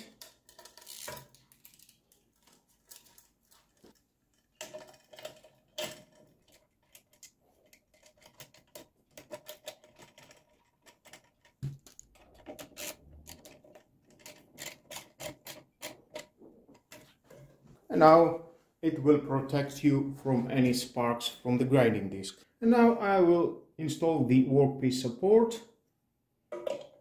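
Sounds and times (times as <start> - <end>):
small parts clicking and tapping: 0.0 - 17.2.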